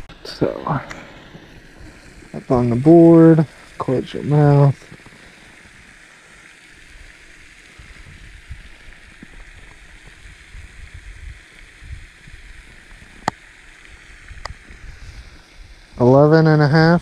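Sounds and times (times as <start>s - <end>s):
steady faint hiss: 0.0s - 17.0s.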